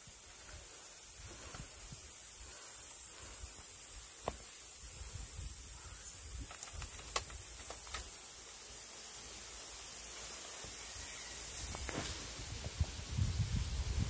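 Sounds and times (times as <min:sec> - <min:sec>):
bamboo platform creaking: 0:06.4 - 0:08.1.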